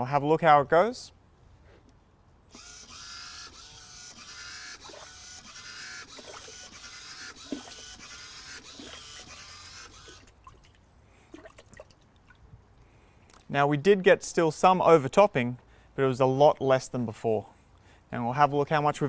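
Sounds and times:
wave maker mechanical whir: 2.5 - 10.4
water splashing against wall: 10.0 - 12.4.

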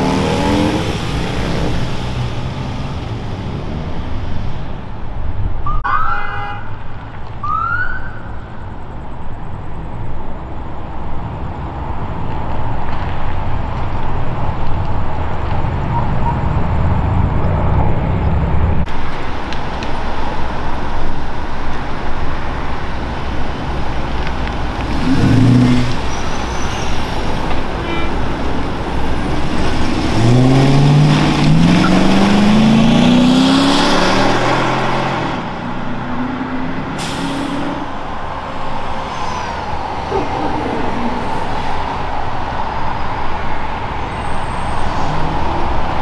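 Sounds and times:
car engine accelerating: 0.0 - 4.8, 28.9 - 42.2
vehicles passing: 0.0 - 46.0.

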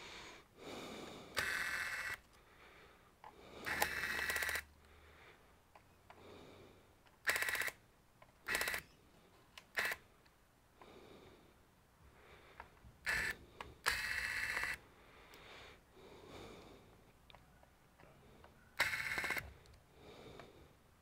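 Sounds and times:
electric screwdriver whirring: 1.4 - 2.2, 3.6 - 4.6, 13.1 - 14.8, 18.8 - 19.4.

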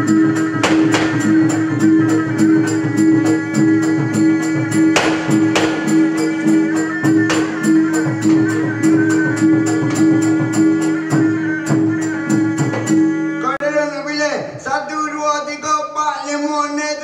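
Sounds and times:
cymbals and drums beat: 0.0 - 13.3
instrumental ensemble music: 0.0 - 14.6.

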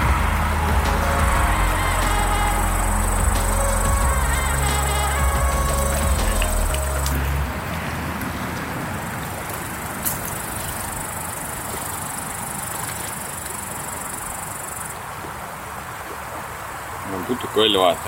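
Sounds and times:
high insect whine: 0.0 - 7.4
background music: 0.0 - 7.6
river water flowing: 0.0 - 18.0.

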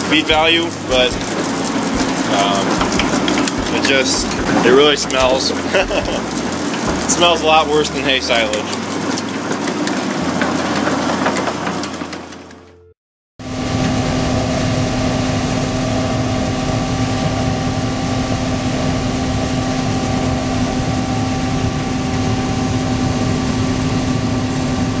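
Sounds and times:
harvester engine hum: 0.0 - 12.9
steady machine tones: 0.0 - 12.9.

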